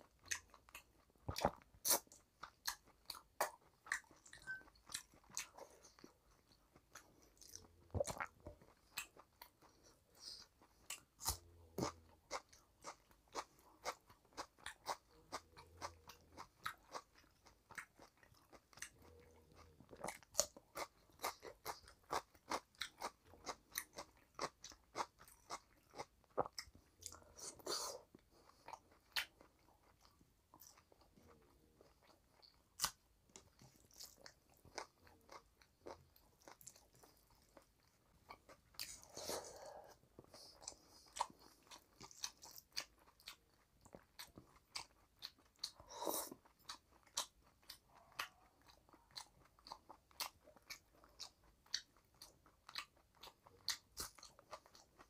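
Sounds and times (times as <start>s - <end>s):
wet chewing and lip smacking: 0.0s - 55.0s.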